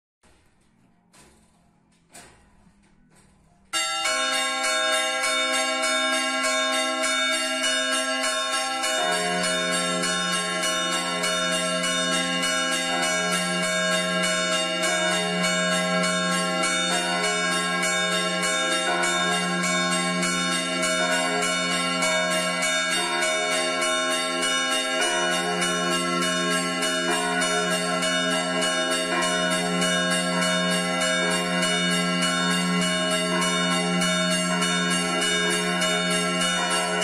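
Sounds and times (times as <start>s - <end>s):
church bells chiming: 3.8s - 37.0s.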